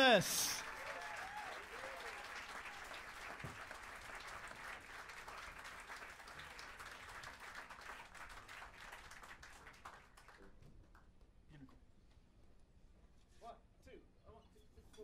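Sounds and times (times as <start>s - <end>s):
audience applause: 0.0s - 10.4s.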